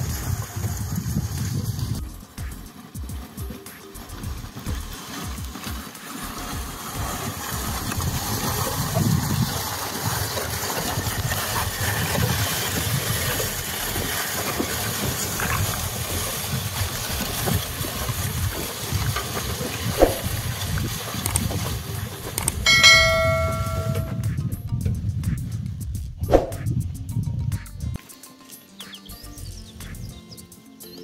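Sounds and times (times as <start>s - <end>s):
seeder rattling on soil: 0.0s - 24.2s.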